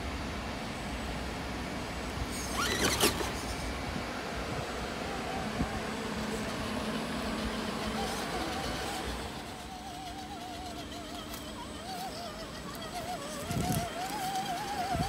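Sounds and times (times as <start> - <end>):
steady background noise: 0.0 - 15.0
electric motor whining: 2.3 - 15.0.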